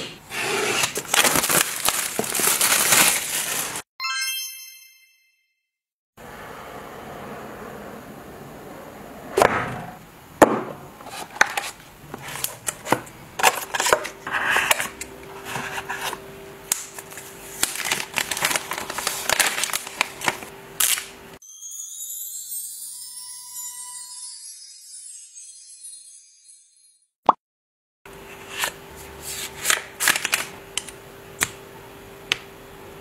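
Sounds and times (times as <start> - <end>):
paper and plastic rustling: 0.5 - 3.8, 11.0 - 21.1, 28.5 - 30.6
music: 21.4 - 27.1.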